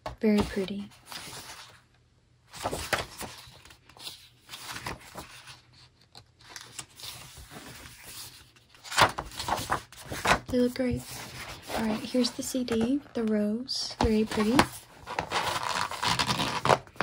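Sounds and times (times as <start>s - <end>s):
paper pages rustling and turning: 0.2s - 1.9s, 2.5s - 17.0s.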